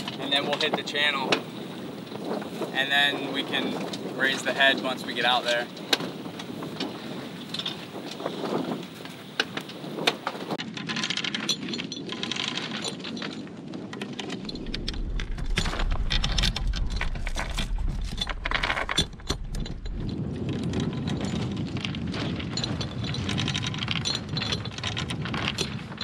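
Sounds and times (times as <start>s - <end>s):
anchor chain clanking: 0.0s - 26.0s
low rumble: 14.4s - 26.0s.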